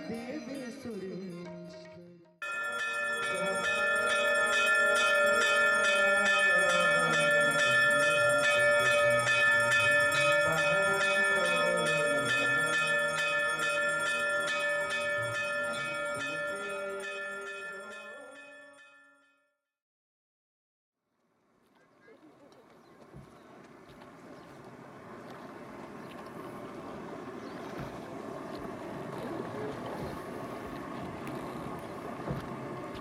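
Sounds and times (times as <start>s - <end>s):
bell ringing rapidly: 2.4s - 19.2s.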